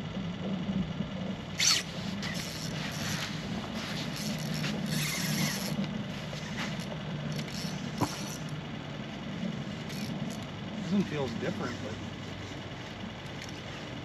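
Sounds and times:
steady low hum: 0:00.0 - 0:14.0
fishing reel whirring: 0:01.5 - 0:08.8, 0:09.4 - 0:11.7, 0:12.4 - 0:14.0.

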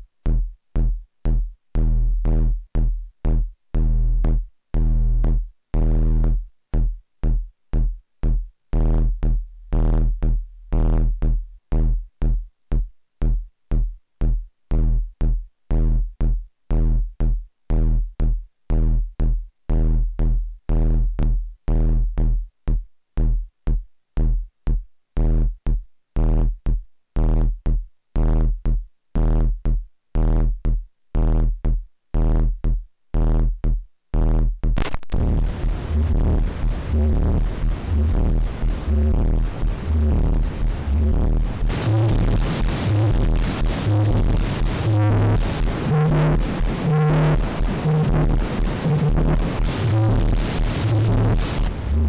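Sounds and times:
synthesizer bass sequence: 0:24.2 - 0:52.0.

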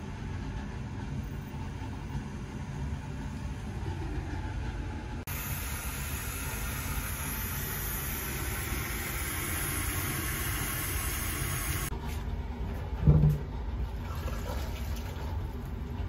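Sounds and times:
gas burner roar: 0:00.0 - 0:13.7
hiss: 0:05.3 - 0:11.9.

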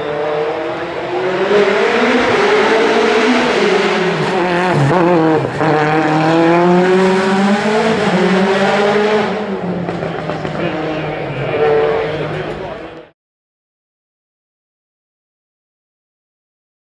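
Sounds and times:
rally car engine accelerating: 0:00.0 - 0:13.1.

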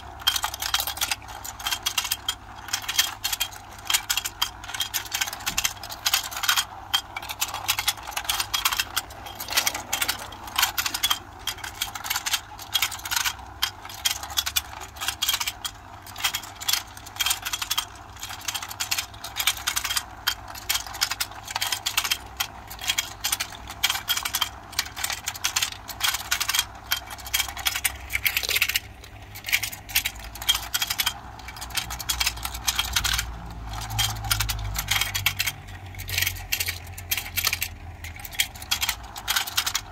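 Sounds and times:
plastic toy clicking and rattling: 0:00.0 - 0:39.9.

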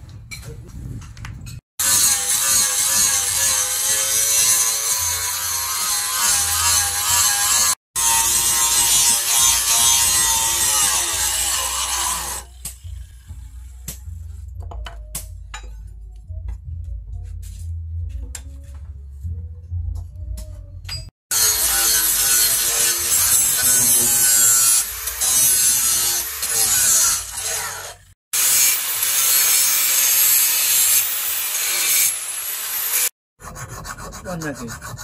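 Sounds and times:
angle grinder cutting steel: 0:01.8 - 0:13.2, 0:21.3 - 0:34.8.

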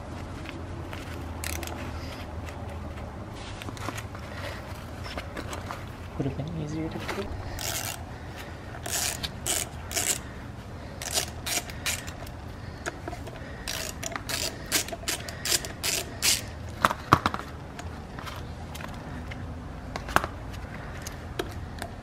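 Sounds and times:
socket ratchet clicking: 0:07.6 - 0:08.0, 0:08.8 - 0:10.2, 0:11.0 - 0:12.4, 0:13.6 - 0:16.5.

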